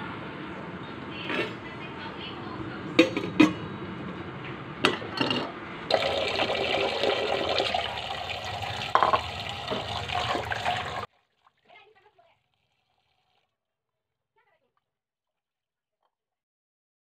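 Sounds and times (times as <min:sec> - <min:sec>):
tap water running into a metal bowl: 0:05.9 - 0:13.4
metal kitchenware knocks: 0:08.9 - 0:10.0.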